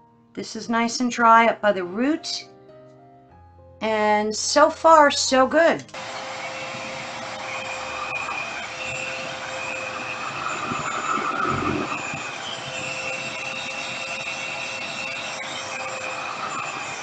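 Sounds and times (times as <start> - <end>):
hair dryer whining: 5.9 - 17.0.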